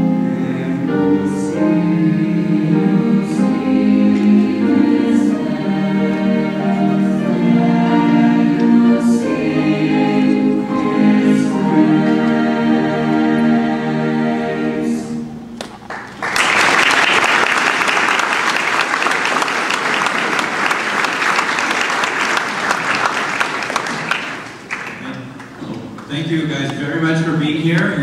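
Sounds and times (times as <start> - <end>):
choir holding a chord: 0.0 - 15.6
audience applauding: 15.8 - 26.1.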